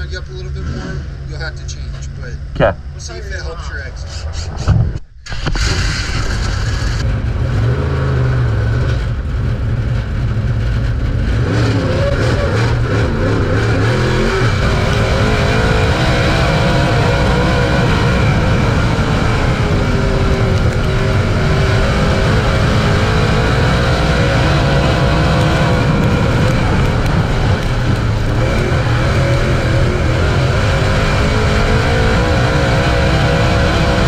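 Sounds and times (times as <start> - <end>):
race car engine running hard: 6.9 - 34.0.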